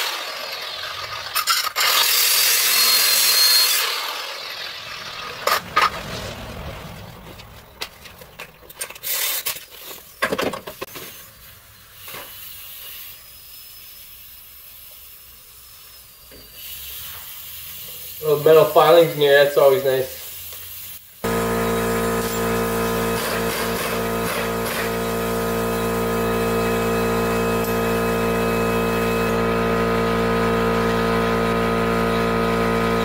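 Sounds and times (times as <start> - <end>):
angle grinder cutting metal: 0.0 - 6.5, 15.8 - 33.0.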